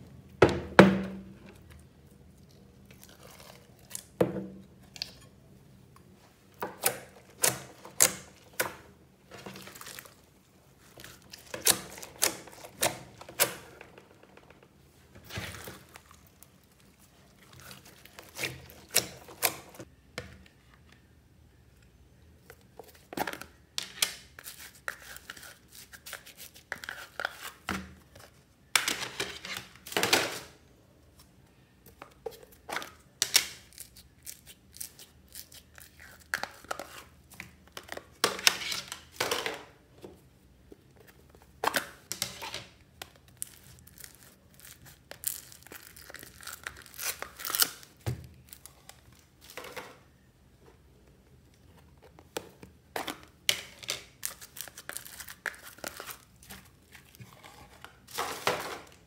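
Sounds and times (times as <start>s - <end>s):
slime crackling and tearing: 43.2s - 49.0s.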